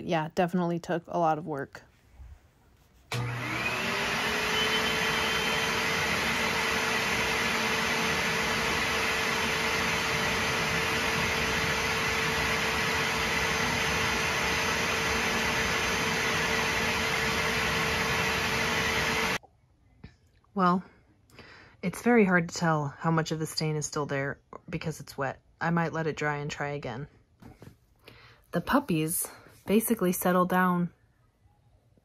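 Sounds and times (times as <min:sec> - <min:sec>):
cleaner motor whining hum: 0:03.1 - 0:19.4.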